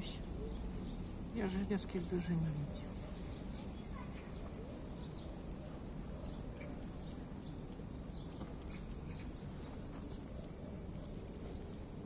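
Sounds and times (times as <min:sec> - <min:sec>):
cats chewing wet food: 0:00.0 - 0:12.0
soft irregular clicks: 0:04.0 - 0:12.0.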